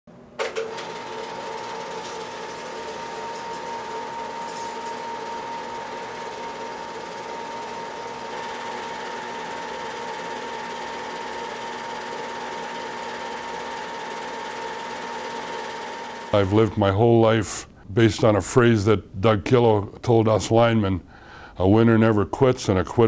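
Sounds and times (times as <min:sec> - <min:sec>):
film projector clatter and hum: 0:00.3 - 0:16.5.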